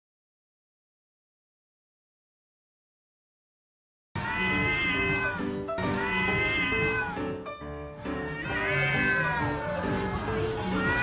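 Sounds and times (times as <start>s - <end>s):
cat yowling meows: 4.2s - 7.4s, 8.2s - 11.0s
background music: 4.2s - 11.0s.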